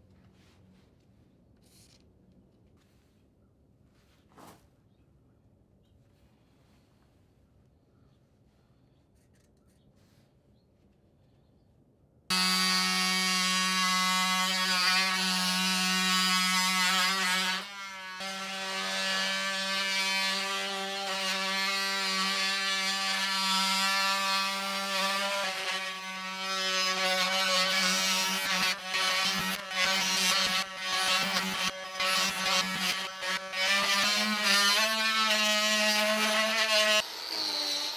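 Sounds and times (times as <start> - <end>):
oscillating multi-tool cutting wood: 12.3 - 37.9.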